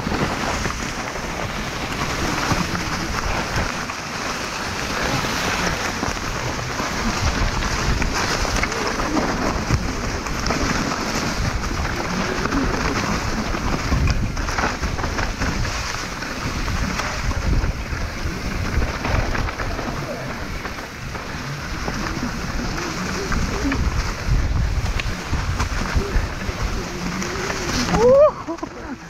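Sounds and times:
bike clattering over stones: 0.0s - 29.0s
bike tyres rumbling on trail: 0.0s - 29.0s
wind buffeting microphone: 0.0s - 29.0s.

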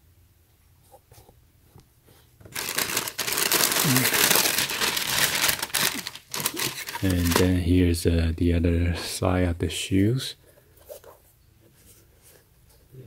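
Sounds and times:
tissue paper crinkling: 2.5s - 7.6s.

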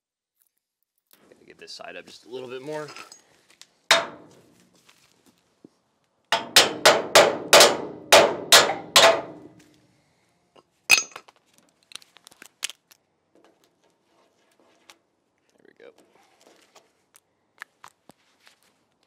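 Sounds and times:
hammer striking steel: 3.9s - 4.4s, 6.3s - 9.6s.

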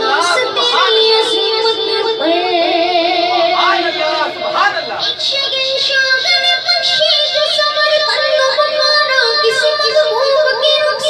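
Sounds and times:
boy singing into a microphone: 0.0s - 11.0s.

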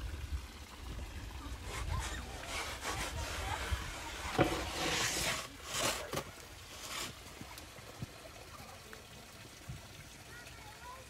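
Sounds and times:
wood sliding on floured wood: 1.6s - 7.3s.

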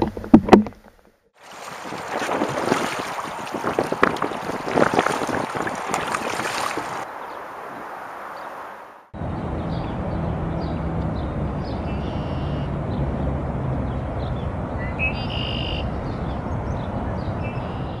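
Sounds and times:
bird chirps: 10.6s - 12.7s, 13.9s - 18.0s
long bird calls: 11.6s - 12.7s, 14.2s - 18.0s.

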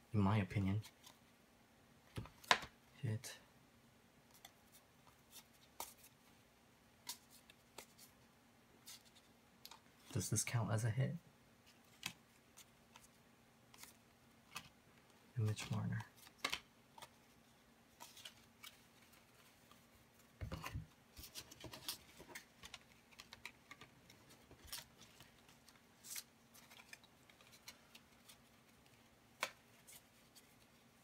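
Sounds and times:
faint steady hum: 0.0s - 31.0s
cards sliding and tapping: 7.0s - 8.1s, 11.7s - 14.8s, 15.4s - 30.7s.

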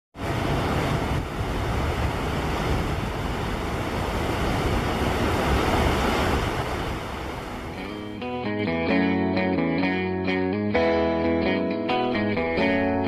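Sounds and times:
rushing outdoor noise: 0.2s - 8.3s.

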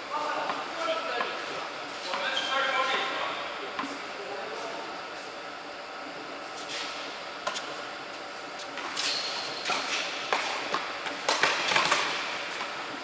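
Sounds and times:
racket striking tennis ball: 9.6s - 12.3s.

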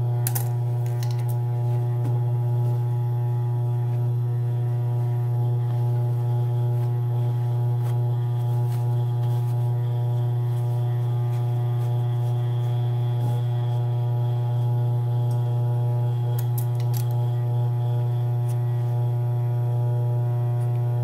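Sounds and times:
low electrical hum: 0.0s - 21.0s
paper rustling: 5.7s - 13.8s.

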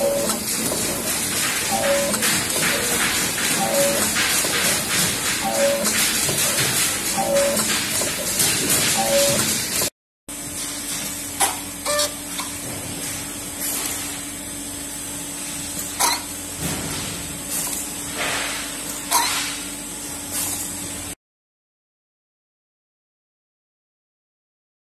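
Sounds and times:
punching press humming: 0.0s - 21.0s.

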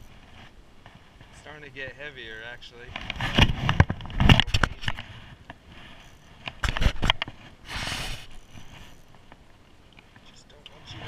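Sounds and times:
handling knocks and scrapes: 2.6s - 9.4s
rustling hiss: 5.0s - 11.0s.

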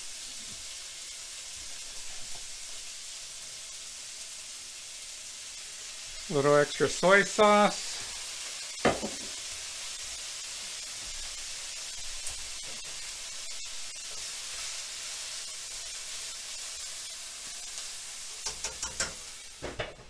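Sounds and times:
filling sizzling in frying pan: 0.0s - 20.0s
pan lid and spatula knocks: 8.9s - 9.3s.

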